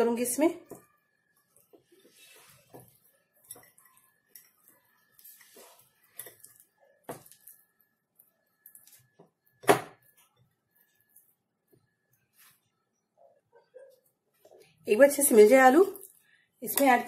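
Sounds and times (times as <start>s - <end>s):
hand squishing wet food: 0.7s - 12.7s.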